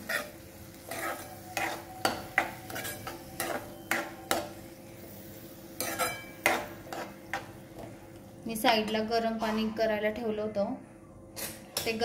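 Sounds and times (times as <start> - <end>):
spatula scraping metal pan: 5.8 - 7.4.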